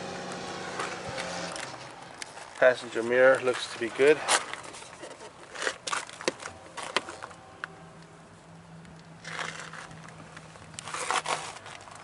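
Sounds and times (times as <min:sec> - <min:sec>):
rustling scrapes: 0:01.6 - 0:07.4, 0:09.2 - 0:09.9, 0:10.8 - 0:12.0.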